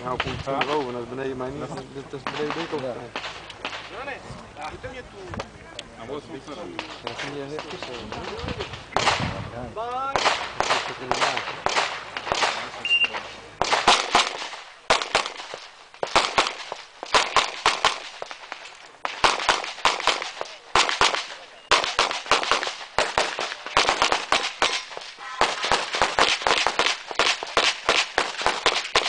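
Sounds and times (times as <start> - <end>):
pistol shots: 2.2 - 4.0, 6.7 - 9.4, 10.1 - 29.0.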